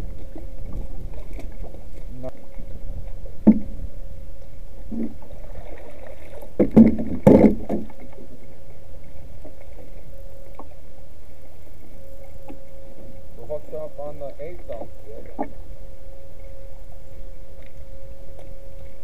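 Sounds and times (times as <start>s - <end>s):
faint steady hum: 0.0s - 19.0s
steady low rumble: 0.0s - 19.0s
paddle knocking against canoe: 3.4s - 3.8s, 6.6s - 8.0s.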